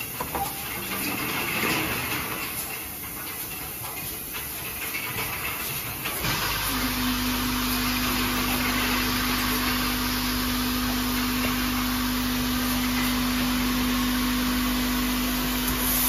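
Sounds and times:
machine motor hum: 6.2 - 16.0.

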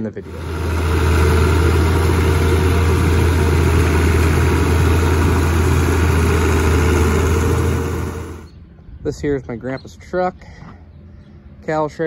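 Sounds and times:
tractor diesel engine running: 0.0 - 8.5.

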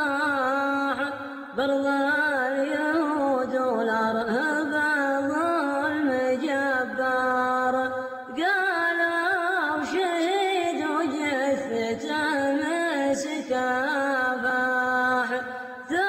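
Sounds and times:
solo voice singing: 0.0 - 16.0.

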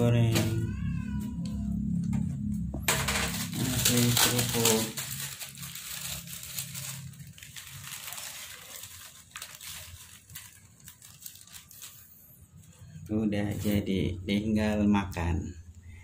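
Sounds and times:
plastic bag crinkling: 2.9 - 13.9
crackers rustling together: 3.1 - 12.6.

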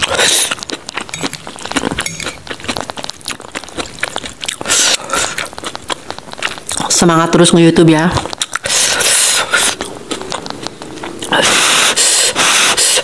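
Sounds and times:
chewing with crunches: 0.0 - 13.0
fork clinking and scraping on plate: 1.1 - 2.4.

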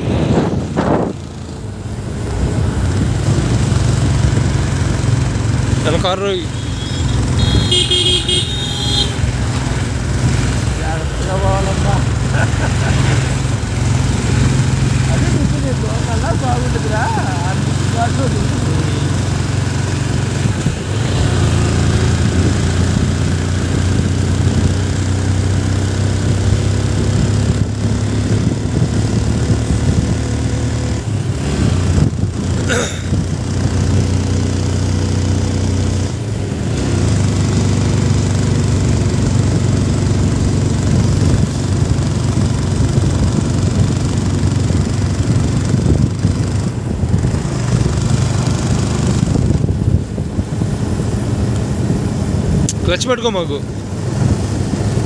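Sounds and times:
motorcycle engine running: 0.0 - 52.9
road noise: 0.0 - 55.0
rushing wind: 0.0 - 55.0.

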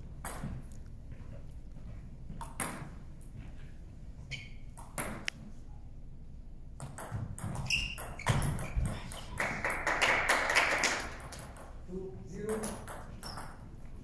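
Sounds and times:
table tennis ball hits: 4.8 - 5.3, 6.8 - 9.8, 12.5 - 13.6.

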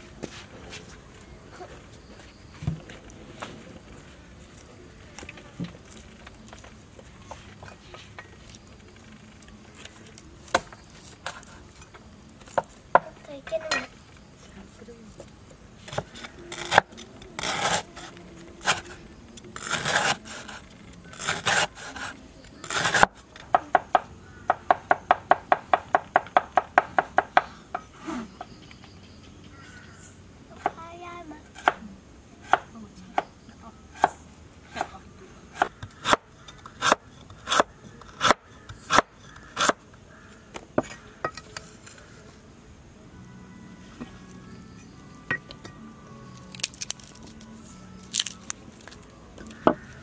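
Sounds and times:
cleaver scraping cuts on board: 15.9 - 19.0, 19.6 - 23.2, 35.6 - 39.8.

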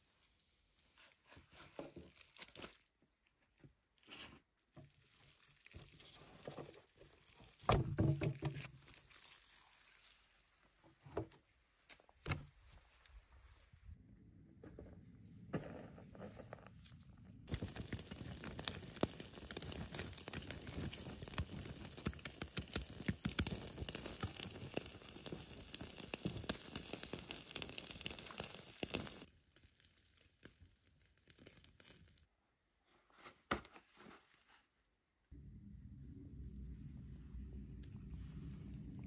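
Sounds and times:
ember fire crackling: 17.4 - 32.3.

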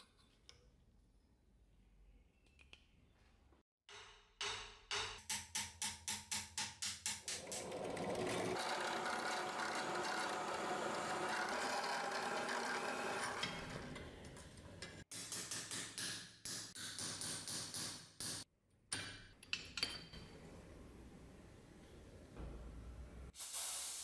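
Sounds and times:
drill press drilling: 7.4 - 14.0.

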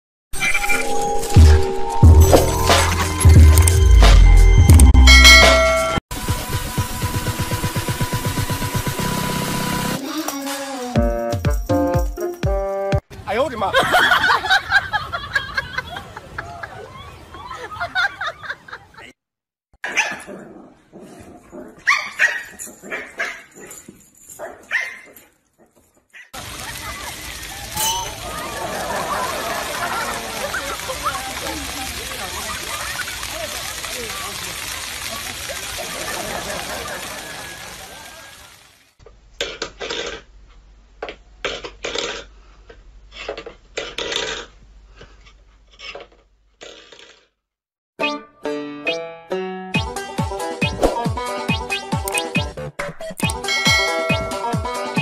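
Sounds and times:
music: 0.6 - 13.0, 48.0 - 55.0
puppy barking: 19.8 - 20.4, 21.8 - 23.7, 24.4 - 26.4
metal bowl scraping on wooden floor: 43.1 - 47.3.

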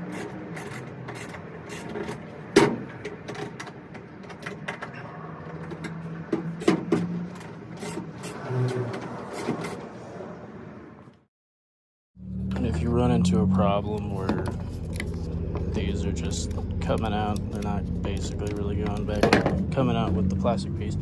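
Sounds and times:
screwdriver clicking and scraping plastic: 13.9 - 19.2.

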